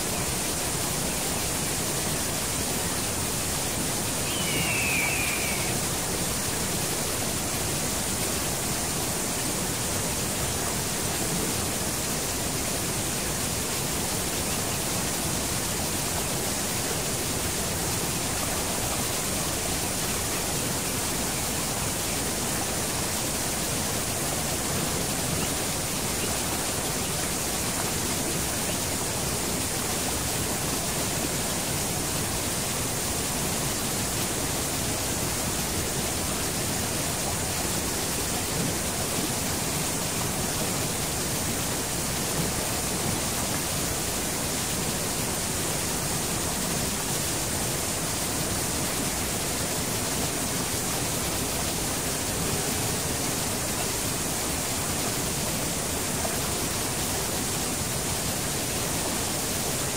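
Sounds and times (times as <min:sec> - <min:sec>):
waterfall rushing: 0:00.0 - 0:59.9
high chirp: 0:04.2 - 0:05.8.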